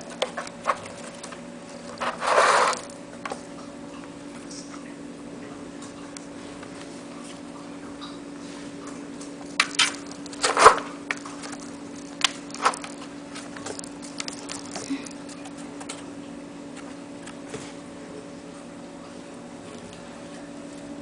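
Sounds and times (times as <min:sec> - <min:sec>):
steady low hum: 0:00.0 - 0:21.0
ball clicking in plastic track: 0:09.6 - 0:14.9.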